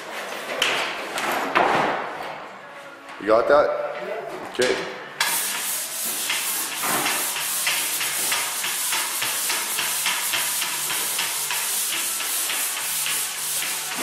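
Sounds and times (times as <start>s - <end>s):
pole sander scraping drywall: 5.2s - 14.0s.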